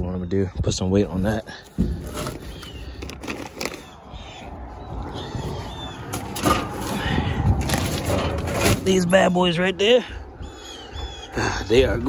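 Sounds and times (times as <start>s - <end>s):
junk rustling and scraping: 0.6s - 4.0s, 5.3s - 9.6s.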